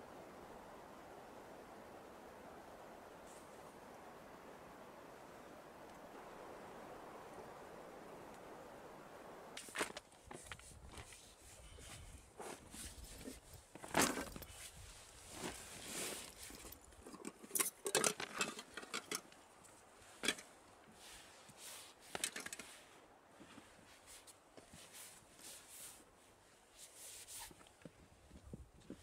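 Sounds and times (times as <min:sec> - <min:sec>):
nylon jacket rustling: 0:09.6 - 0:16.8.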